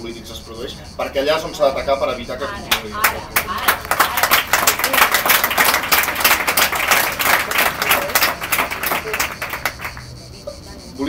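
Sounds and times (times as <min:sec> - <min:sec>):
audience applauding: 0:02.7 - 0:10.1.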